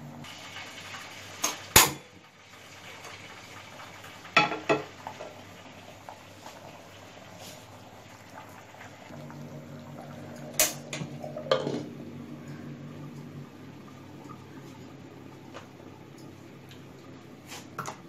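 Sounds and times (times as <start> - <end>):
iron pan clanking on stove grate: 4.4 - 4.9.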